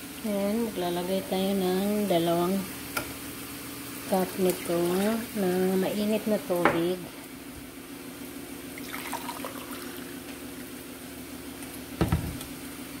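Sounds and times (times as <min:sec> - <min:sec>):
water pouring into a mug: 0:08.8 - 0:10.2.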